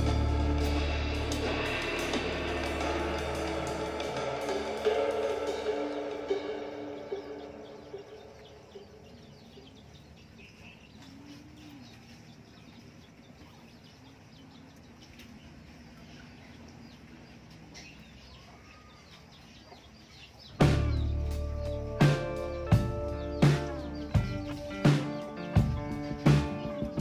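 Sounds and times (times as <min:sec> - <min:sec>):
background music: 0:00.0 - 0:09.4, 0:20.5 - 0:27.0
animal chirping and clucking: 0:05.7 - 0:27.0.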